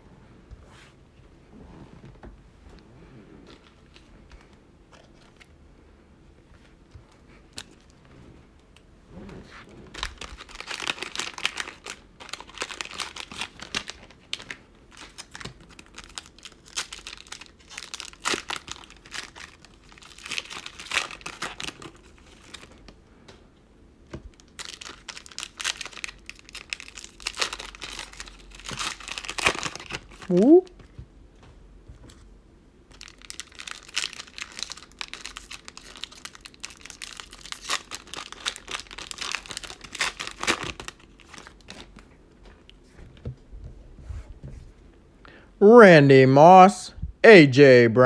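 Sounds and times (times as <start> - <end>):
plastic wrappers crinkling and tearing: 9.9 - 23.0, 24.3 - 30.4, 32.9 - 42.8.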